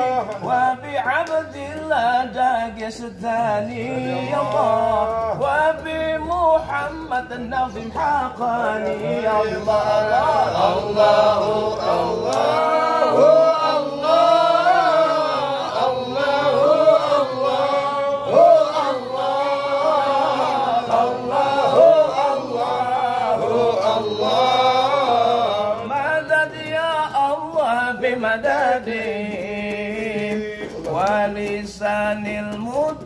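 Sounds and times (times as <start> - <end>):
man chanting: 0.0 - 33.0.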